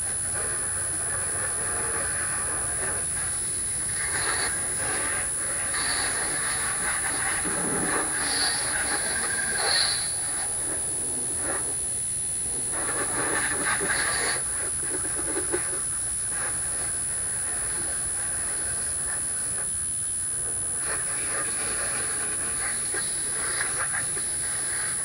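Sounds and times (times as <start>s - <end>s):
hose water spraying on car: 0.4s - 10.8s, 20.8s - 25.0s.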